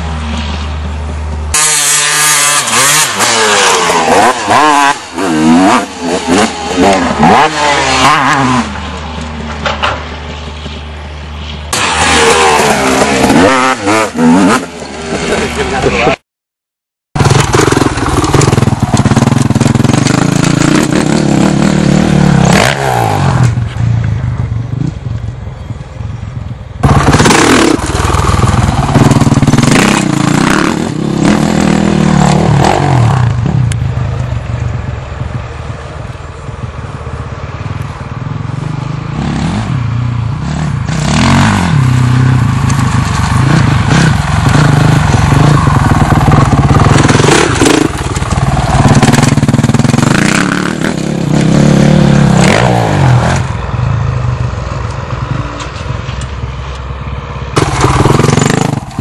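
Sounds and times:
dirt bike engine revving: 0:01.5 - 0:08.9, 0:11.7 - 0:16.2, 0:17.2 - 0:23.6, 0:26.8 - 0:33.7, 0:39.1 - 0:53.6, 0:57.6 - 0:59.0.

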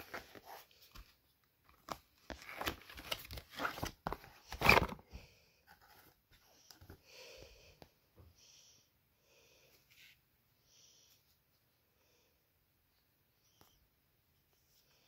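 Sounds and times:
cardboard rustling and scraping: 0:00.0 - 0:05.1.

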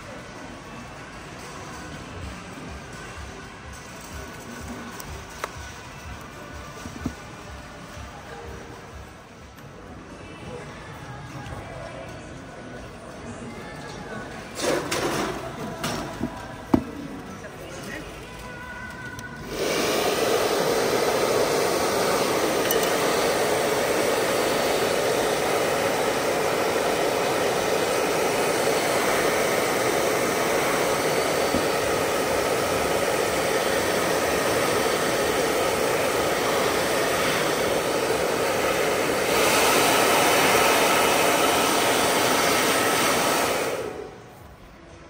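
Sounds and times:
hot air gun blowing: 0:19.4 - 0:44.2.

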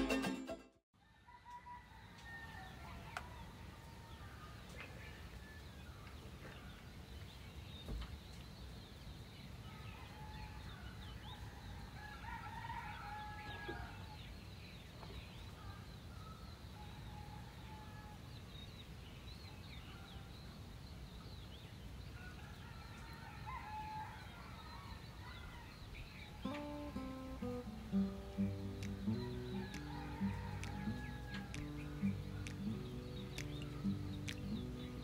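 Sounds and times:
faint rooster crowing: 0:01.0 - 0:06.8, 0:09.6 - 0:14.3, 0:15.6 - 0:18.4, 0:22.0 - 0:27.6, 0:28.4 - 0:35.0.

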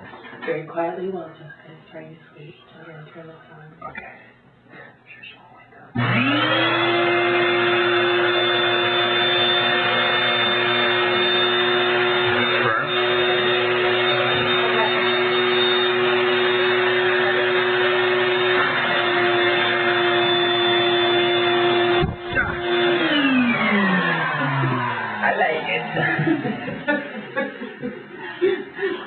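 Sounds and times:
vacuum cleaner motor whining: 0:06.0 - 0:27.0.

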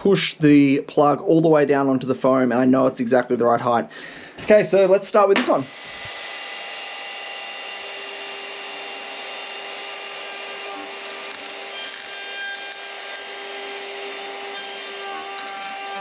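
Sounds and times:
router cutting foam board: 0:05.2 - 0:16.0
router motor whine: 0:05.4 - 0:16.0.

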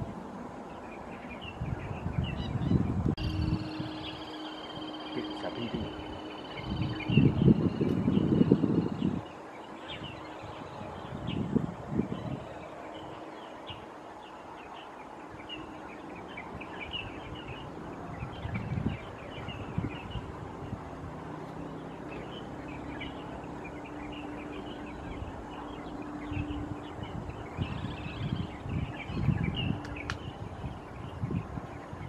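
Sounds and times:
small birds chirping: 0:00.0 - 0:32.0.

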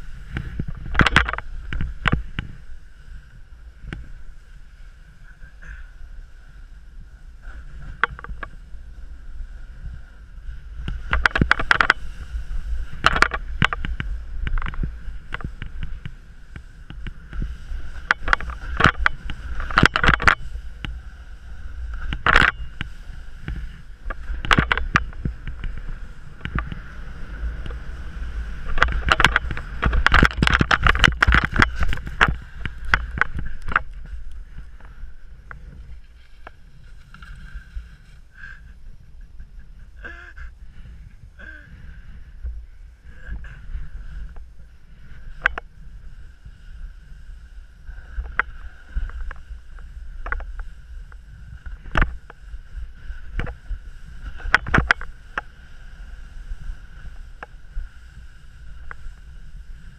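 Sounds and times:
snowboard edge scraping snow: 0:00.0 - 0:39.9, 0:40.6 - 0:59.9
wind rumble on microphone: 0:00.0 - 0:59.9.

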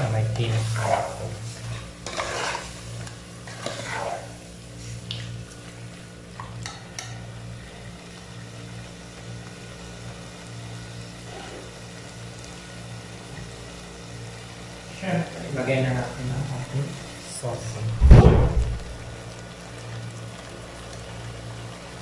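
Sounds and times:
stew sizzling faintly: 0:00.0 - 0:22.0
metal turner scraping a pot: 0:00.4 - 0:02.8, 0:03.4 - 0:04.3
steady low hum: 0:16.0 - 0:19.3.

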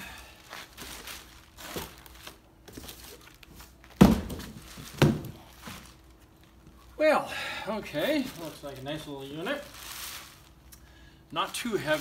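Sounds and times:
plastic wrapping crinkling: 0:00.0 - 0:07.0, 0:07.9 - 0:12.0
heavy thumps on concrete: 0:04.0 - 0:05.8.

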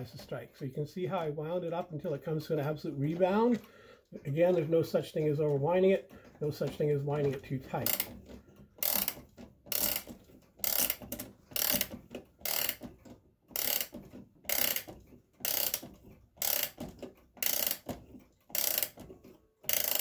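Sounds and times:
clock winding ratchet clicking: 0:07.3 - 0:12.9, 0:13.5 - 0:20.0.

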